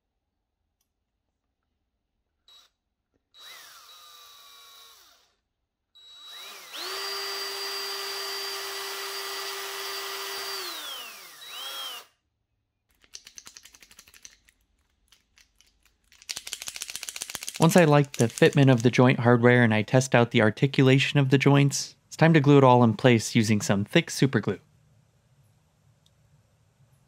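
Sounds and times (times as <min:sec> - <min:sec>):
cordless drill boring wood: 0:02.5 - 0:12.2.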